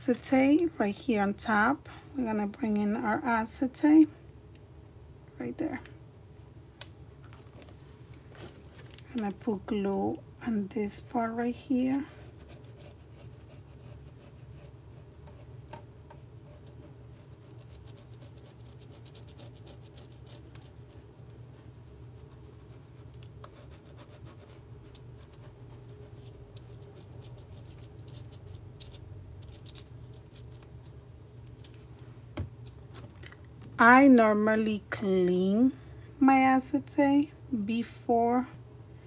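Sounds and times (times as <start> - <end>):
steady low hum: 0.0 - 39.0
glue nozzle scratching paper: 16.4 - 30.6.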